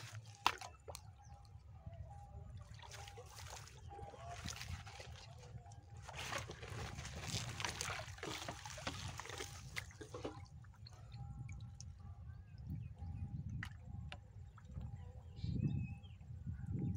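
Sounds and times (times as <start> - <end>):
water sloshing and splashing: 0.0 - 12.7
water trickling off net: 6.0 - 10.4.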